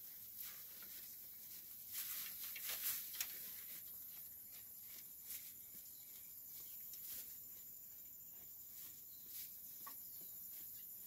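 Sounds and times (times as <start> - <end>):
hay rustling and crackling: 0.0 - 7.6.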